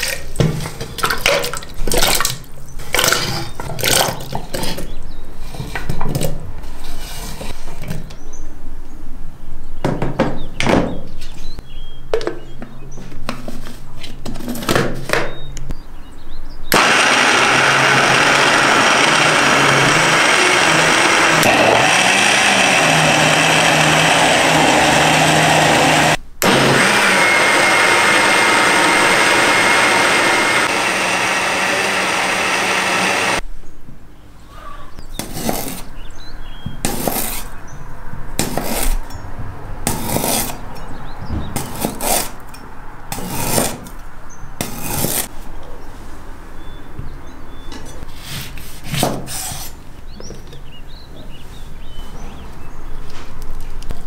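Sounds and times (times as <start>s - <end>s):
blender motor running: 16.7s - 33.4s.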